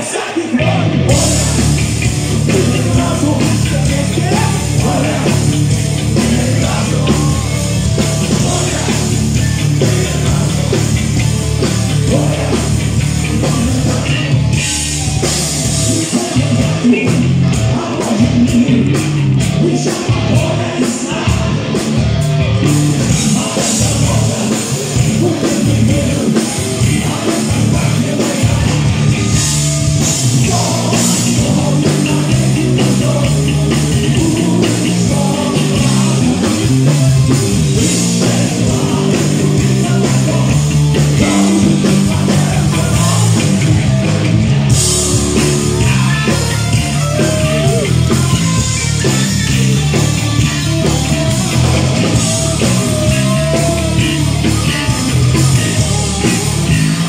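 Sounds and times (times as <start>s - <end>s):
person singing: 0.0s - 11.2s, 23.0s - 29.2s, 30.2s - 43.6s, 45.4s - 50.0s, 50.8s - 57.0s
drums: 0.0s - 57.0s
electric guitars: 0.0s - 57.0s
heavy metal band playing live: 0.0s - 57.0s.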